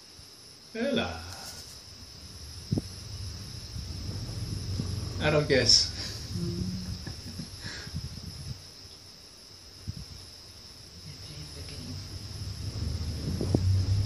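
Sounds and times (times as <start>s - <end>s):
insects droning: 0.0s - 14.0s
gondola cabin rumble: 1.3s - 8.6s, 11.2s - 14.0s.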